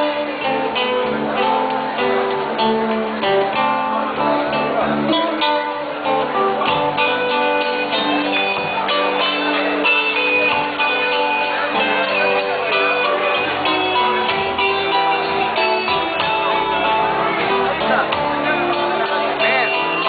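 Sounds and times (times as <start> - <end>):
acoustic guitar: 0.0 - 20.0
electric bass: 0.0 - 20.0.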